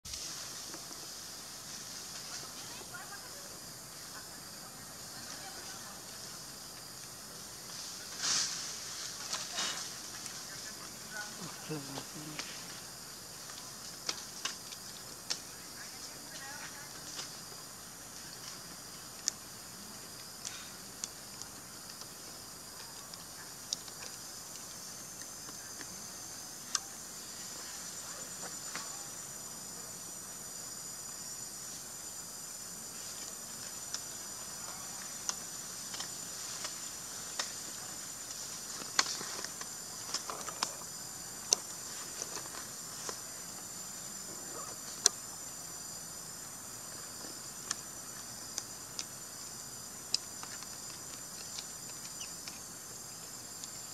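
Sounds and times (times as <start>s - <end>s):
insects buzzing: 0.0s - 53.9s.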